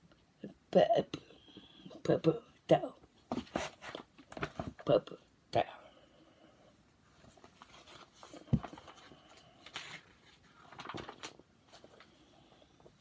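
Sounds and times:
paper rustling: 7.2s - 12.2s.

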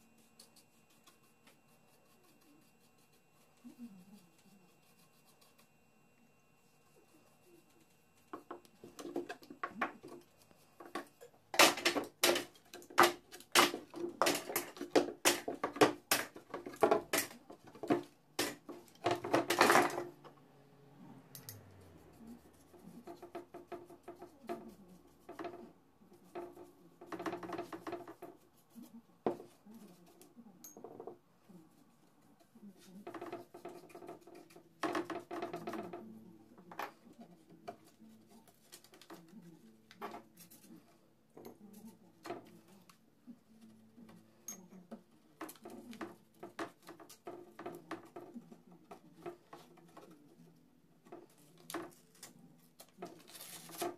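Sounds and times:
brush tapping glass jar: 0.0s - 5.8s, 6.6s - 11.1s.

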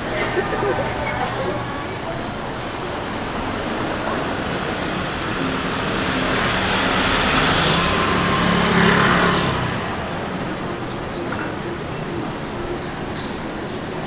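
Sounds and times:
traffic hum: 0.0s - 14.0s
vehicle passing close by: 5.2s - 10.4s.

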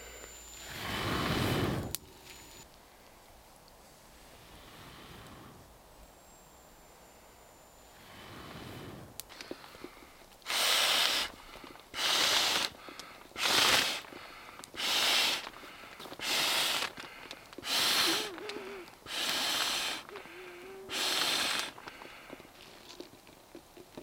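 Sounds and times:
in-breaths: 0.0s - 3.4s, 4.2s - 5.8s, 6.9s - 22.8s
man blowing into valve: 10.5s - 14.1s, 14.7s - 15.5s, 16.2s - 17.0s, 17.6s - 21.8s.

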